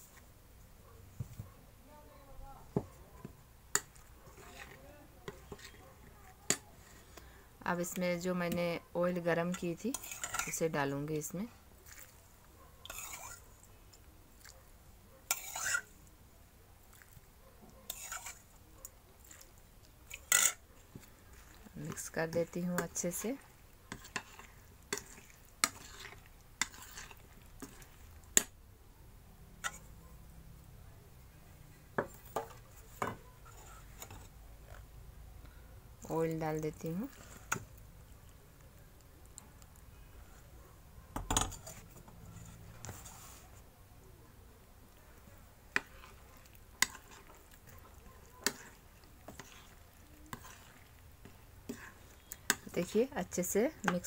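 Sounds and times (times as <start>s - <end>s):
spoon scraping in a bowl: 3.7s - 12.2s, 12.8s - 13.7s, 15.3s - 16.0s, 17.8s - 18.6s, 19.2s - 28.5s, 29.6s - 30.0s, 32.0s - 34.8s, 36.0s - 37.8s, 41.2s - 43.6s, 45.7s - 54.0s.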